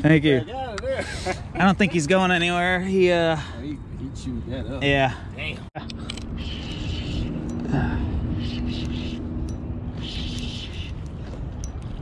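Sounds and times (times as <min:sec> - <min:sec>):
steady low hum: 0:05.1 - 0:12.0.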